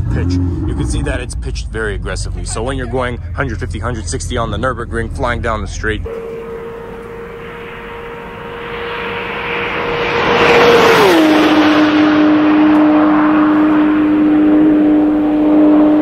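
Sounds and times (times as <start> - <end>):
car passing at high speed: 6.0 - 16.0.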